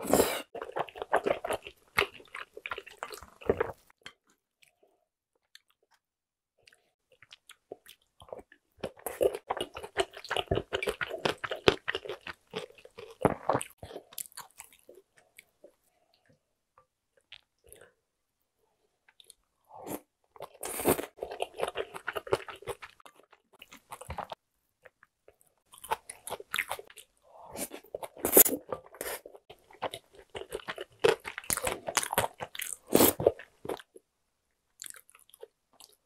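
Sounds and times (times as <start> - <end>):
wet chewing and smacking: 0.5 - 4.8, 6.6 - 15.8, 20.4 - 34.0, 34.8 - 36.0.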